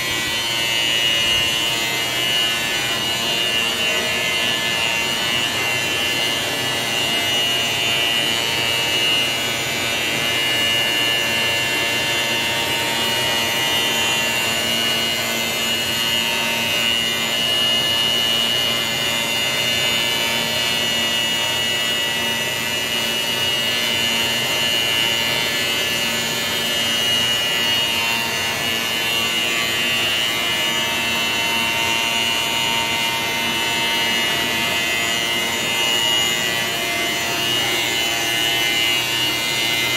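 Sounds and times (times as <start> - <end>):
high whine: 24.8 - 39.9.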